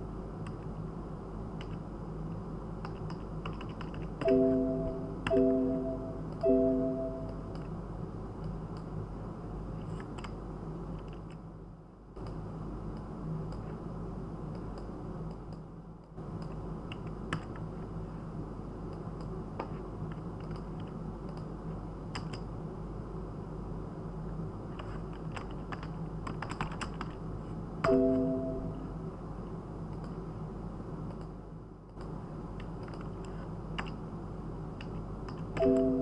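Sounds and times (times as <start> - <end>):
steady low hum: 0.0 - 36.0
keyboard and mouse clicks: 1.6 - 1.8, 2.8 - 5.5, 9.8 - 10.4, 16.4 - 17.7, 19.2 - 21.5, 22.1 - 22.5, 24.8 - 27.2, 31.1 - 34.0
keyboard typing: 2.8 - 7.7, 24.8 - 27.2, 35.3 - 36.0
short electronic tone: 4.2 - 7.4.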